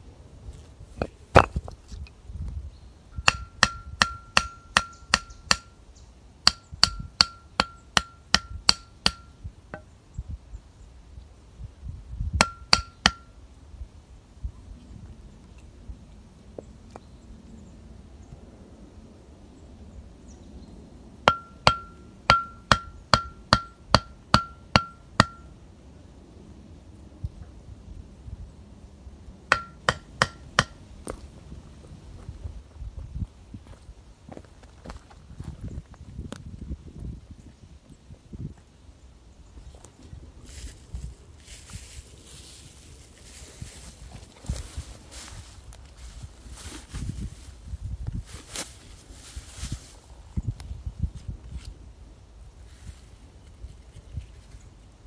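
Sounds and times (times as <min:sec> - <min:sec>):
hammer blows on metal: 0:03.2 - 0:05.8, 0:06.4 - 0:09.9, 0:12.3 - 0:13.4, 0:21.3 - 0:25.6, 0:29.5 - 0:30.8.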